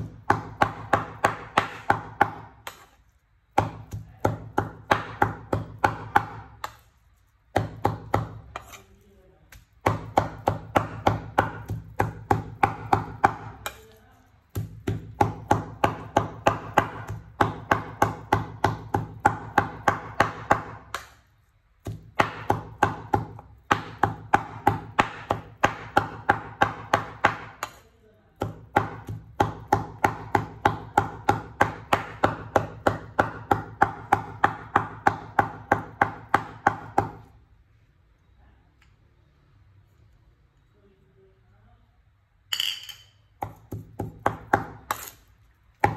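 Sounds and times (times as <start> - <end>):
knife chopping on wooden board: 0.0 - 6.8, 7.5 - 8.8, 9.5 - 13.9, 14.5 - 21.2, 21.8 - 27.8, 28.4 - 37.3, 43.4 - 45.1.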